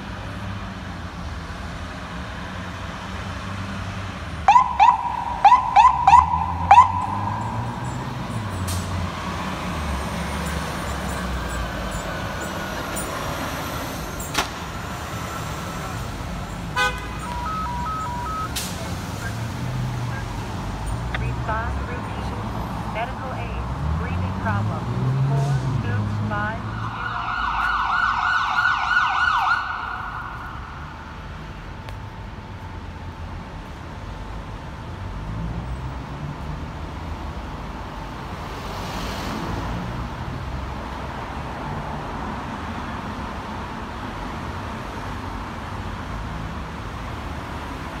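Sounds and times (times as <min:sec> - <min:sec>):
engine rumble: 0:00.0 - 0:48.0
street traffic: 0:00.0 - 0:48.0
electronic siren warbling: 0:04.5 - 0:08.2.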